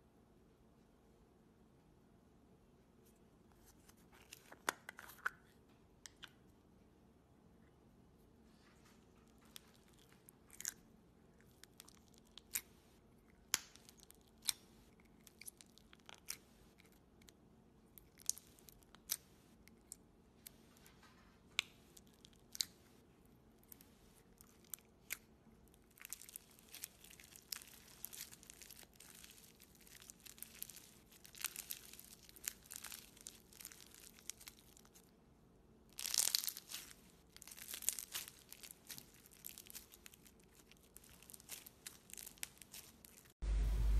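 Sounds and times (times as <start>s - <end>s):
slime crackling and popping: 18.0s - 19.3s, 23.6s - 35.1s, 35.9s - 43.4s.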